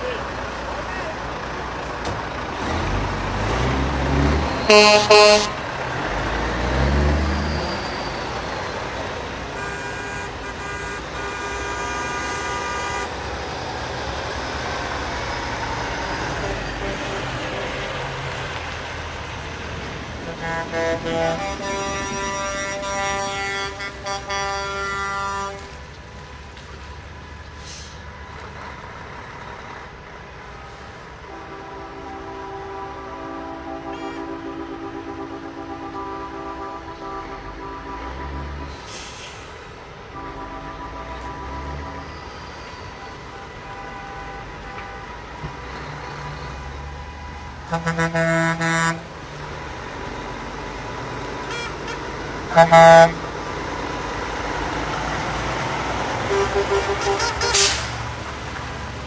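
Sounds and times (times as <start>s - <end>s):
diesel truck engines rumbling: 0.0s - 59.0s
truck air horn blasts: 4.6s - 5.7s, 9.5s - 13.3s, 16.3s - 17.8s, 20.2s - 25.8s, 31.2s - 45.3s, 47.2s - 49.2s, 51.4s - 53.3s, 56.2s - 58.1s.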